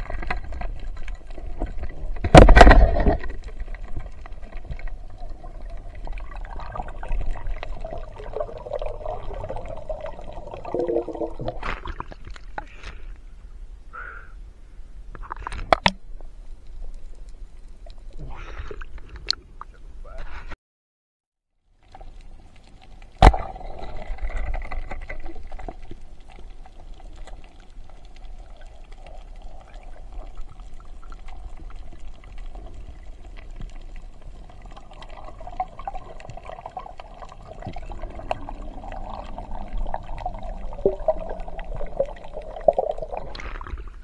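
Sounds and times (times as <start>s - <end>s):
muffled underwater bubbling: 1.5s - 12.2s, 28.0s - 44.0s.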